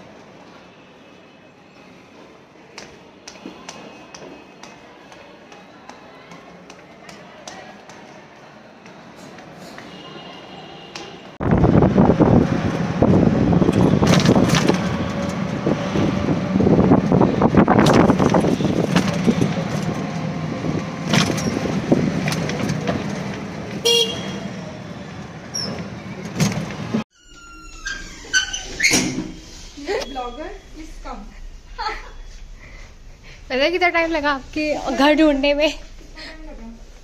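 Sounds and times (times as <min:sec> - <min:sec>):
rickshaw engine and road noise: 0:08.4 - 0:31.2
vehicle horn toot: 0:09.9 - 0:11.4, 0:23.8 - 0:24.5.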